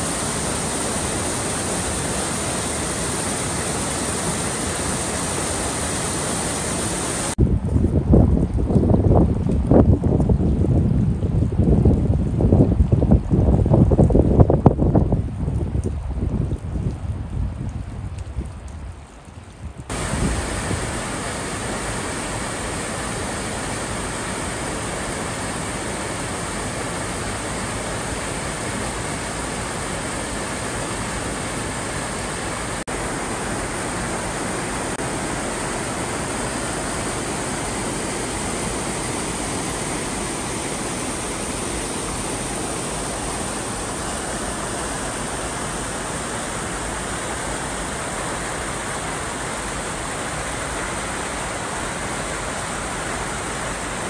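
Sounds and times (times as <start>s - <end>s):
flooded creek water rushing: 0.0s - 7.4s, 19.1s - 54.0s.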